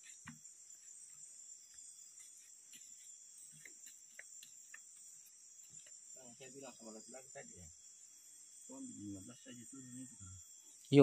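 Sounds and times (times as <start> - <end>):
faint high insect drone: 0.0 - 11.0.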